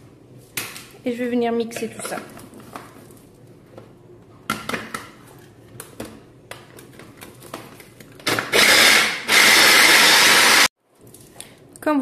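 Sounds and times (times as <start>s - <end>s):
electric blender running: 8.3s - 10.7s.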